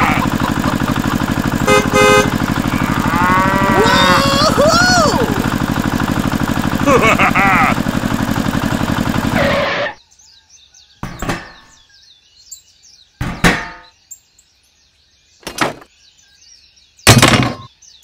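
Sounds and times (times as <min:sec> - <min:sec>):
small engine chugging: 0:00.0 - 0:10.0
birds chirping: 0:00.0 - 0:18.0
sharp ringing knocks: 0:11.0 - 0:11.8, 0:13.2 - 0:14.0.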